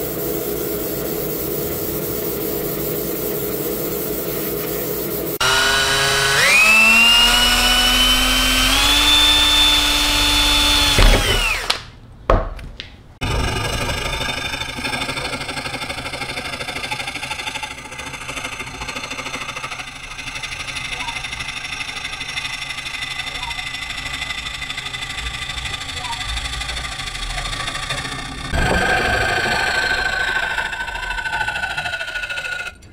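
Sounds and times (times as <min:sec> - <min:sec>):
hand saw strokes: 0:00.0 - 0:11.8
electric power tool running: 0:05.1 - 0:11.8, 0:13.2 - 0:32.8.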